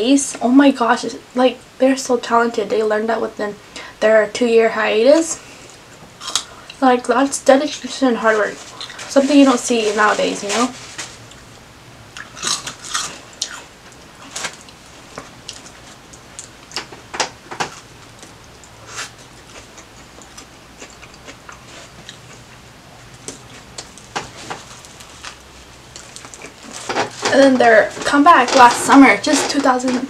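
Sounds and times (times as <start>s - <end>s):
crunching snacks: 12.2s - 14.8s
chewing sandwich: 12.2s - 17.0s, 17.6s - 26.9s.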